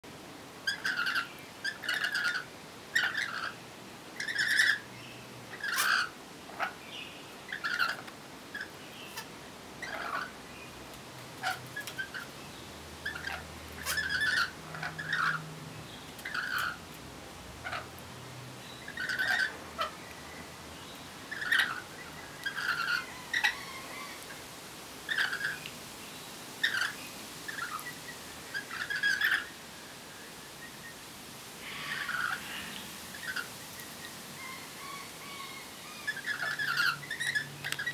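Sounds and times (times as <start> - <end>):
parrots chattering calls: 0.6 - 3.6, 4.2 - 4.9, 5.5 - 6.8, 7.5 - 10.4, 11.4 - 12.3, 13.0 - 15.5, 16.2 - 16.9, 17.6 - 18.0, 18.8 - 20.0, 21.3 - 24.4, 25.1 - 25.7, 26.6 - 29.6, 31.6 - 37.9.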